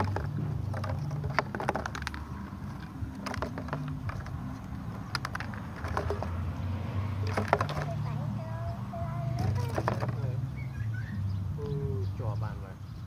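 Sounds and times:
plastic bottles clicking and crackling: 0.0s - 8.2s, 9.3s - 10.4s.

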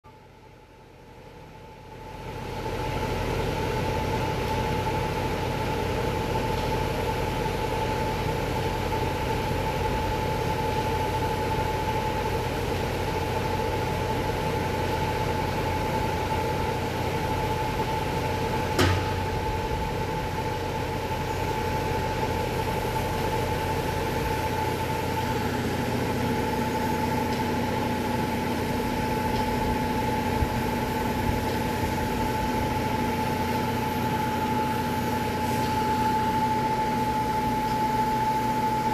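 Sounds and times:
motor humming: 18.3s - 38.9s
high whine: 18.6s - 38.9s.

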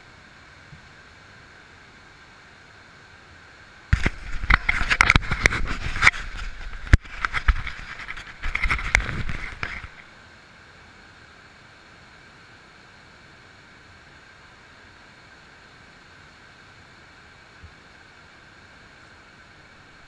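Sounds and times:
small waterfall rushing: 0.0s - 20.0s
camera scraping against rock: 3.9s - 10.0s.

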